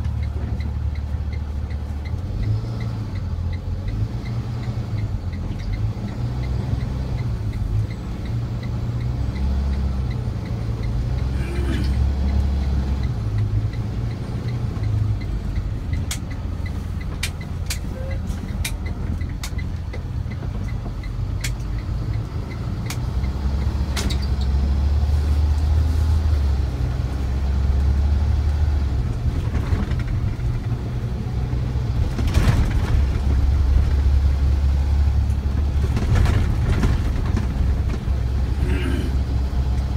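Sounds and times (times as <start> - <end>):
engine and road rumble: 0.0 - 39.9
sharp clicks: 12.2 - 24.5.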